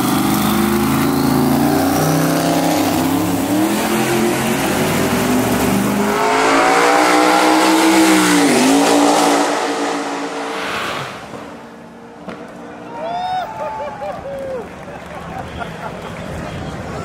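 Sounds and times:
car engine at full throttle: 0.0 - 12.8.

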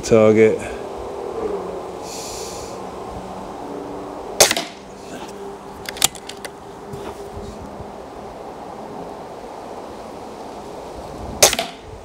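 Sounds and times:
air rifle shot: 4.4 - 4.8, 11.4 - 11.8.

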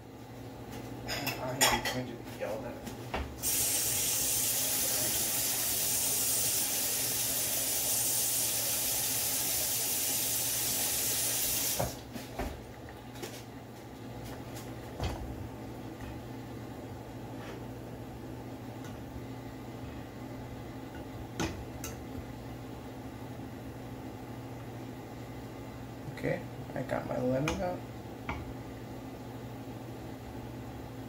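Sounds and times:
kitchenware clinking: 1.0 - 2.0
water running from tap: 3.4 - 12.0.

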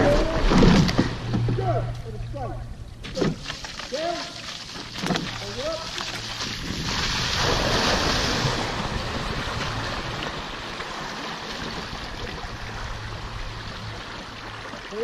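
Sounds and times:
water splashing against boat hull: 0.0 - 1.9, 3.0 - 15.0
oars splashing in water: 0.0 - 2.0, 3.0 - 15.0
wind noise on microphone: 6.4 - 10.7.

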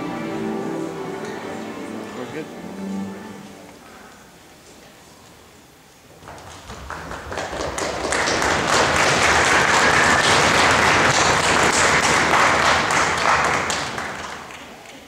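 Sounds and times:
audience applauding: 6.2 - 15.0.

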